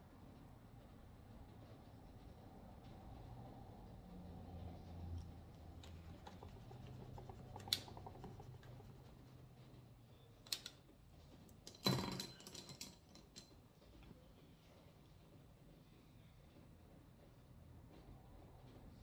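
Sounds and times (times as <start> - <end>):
makeup tools clicking and tapping: 5.8 - 8.9.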